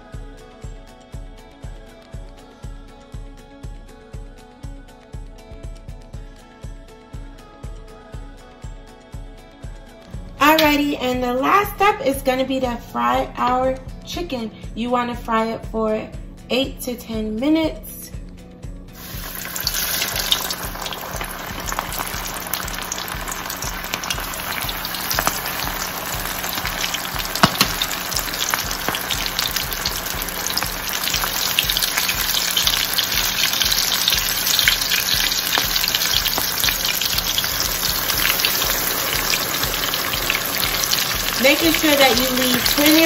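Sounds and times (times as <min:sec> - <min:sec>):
chicken deep-frying in oil: 0:19.0 - 0:43.0.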